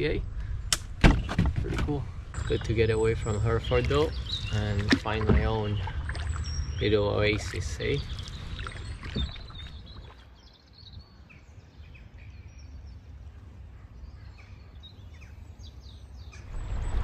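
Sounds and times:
faint bird chirps: 2.3 - 17.0
river rumble: 16.4 - 17.0.

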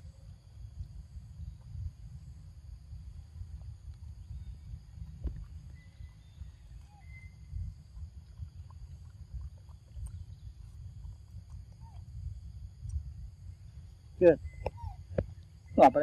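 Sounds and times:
wind buffeting microphone: 0.0 - 16.0
faint high whistles: 5.7 - 7.8, 14.3 - 16.0.

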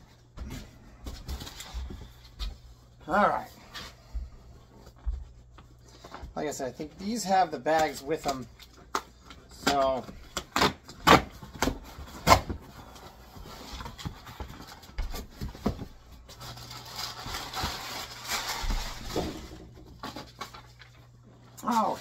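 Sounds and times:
packing paper rustling: 0.4 - 22.0
cardboard box snapping and tearing: 10.4 - 12.6.

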